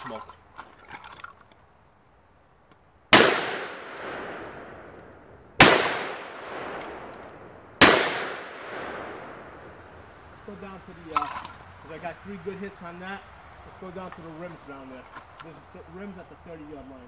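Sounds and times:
revolver gunshots with echo: 3.1 - 4.9, 5.6 - 9.6.

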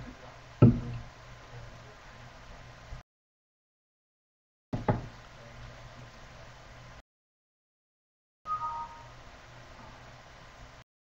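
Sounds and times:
open microphone hum and hiss: 0.0 - 3.0, 4.8 - 7.0, 8.5 - 10.8.

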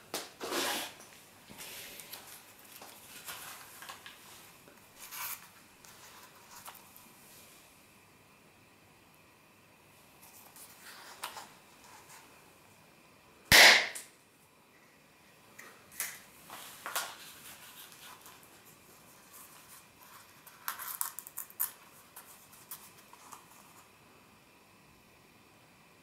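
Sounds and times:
faint clicks and rustles: 1.0 - 7.1, 15.6 - 24.0
party popper bang: 13.5 - 14.1.

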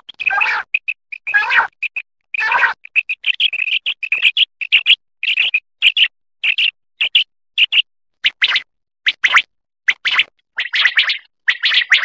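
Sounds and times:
quail calling: 2.4 - 2.8.

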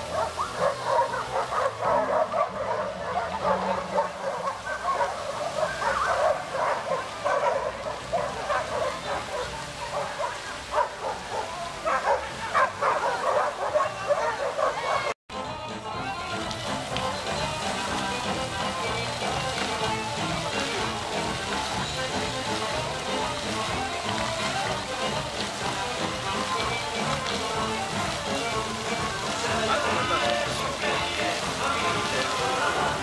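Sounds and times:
fountain water splashing: 0.0 - 33.0
dog yapping: 0.1 - 15.2.

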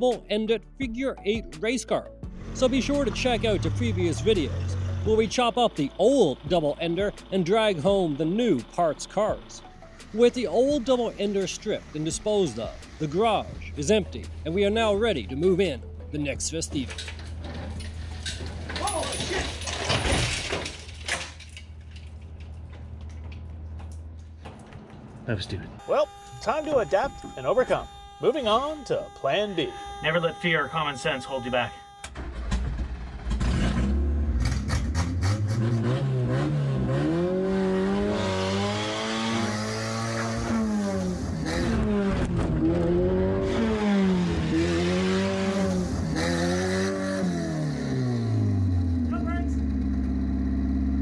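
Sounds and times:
car engine revving: 2.3 - 15.8, 21.9 - 51.0
metal chain clinking and rattling: 16.8 - 24.7.

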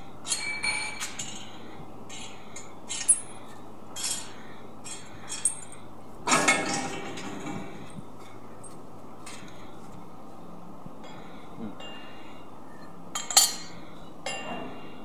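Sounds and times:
metal parts rattling scrape: 0.2 - 8.0.

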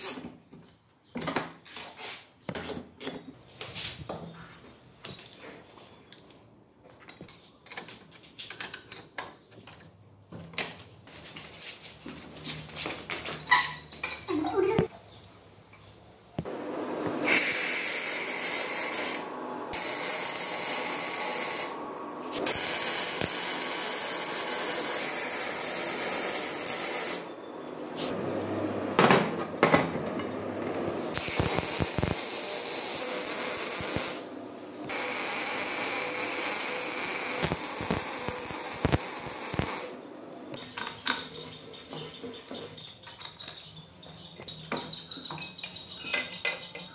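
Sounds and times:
arc welding hiss: 17.2 - 21.8, 22.4 - 27.3, 31.2 - 34.3, 34.9 - 40.0.

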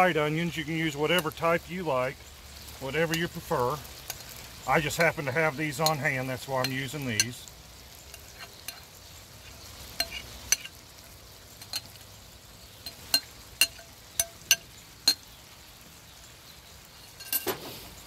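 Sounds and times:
meat sizzling in a skillet: 0.0 - 18.0
glass and utensil clinking: 10.0 - 10.7, 11.6 - 12.0, 12.8 - 15.2, 17.1 - 17.6.

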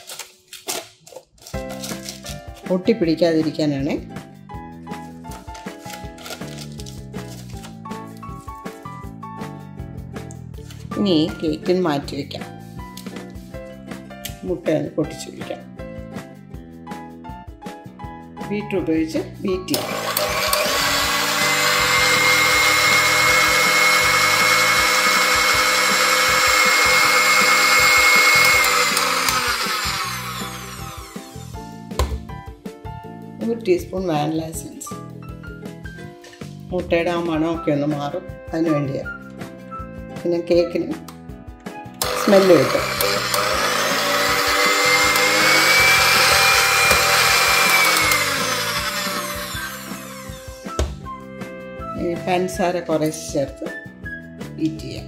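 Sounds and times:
electric hand mixer whining: 19.7 - 32.2, 42.0 - 51.0.

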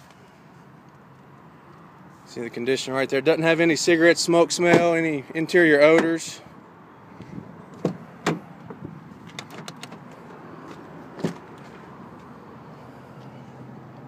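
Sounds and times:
truck door latch clicks and knocks: 7.7 - 11.6.

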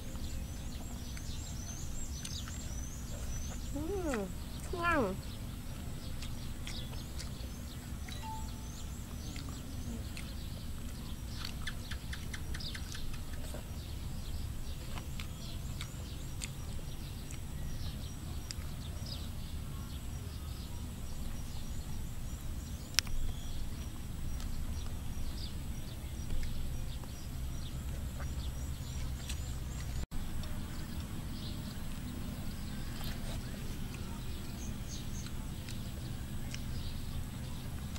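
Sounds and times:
birds chirping: 0.0 - 37.9
low background noise: 0.0 - 37.9.

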